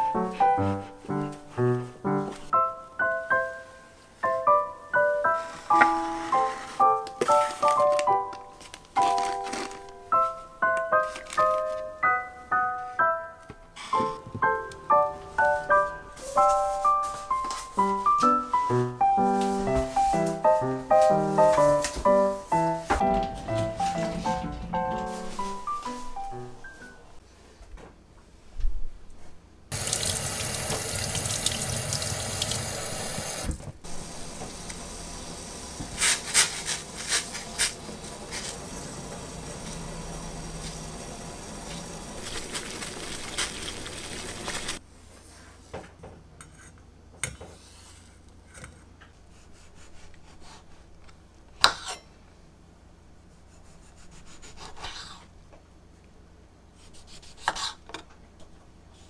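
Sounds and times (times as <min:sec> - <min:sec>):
tap running into sink: 0:29.8 - 0:33.6.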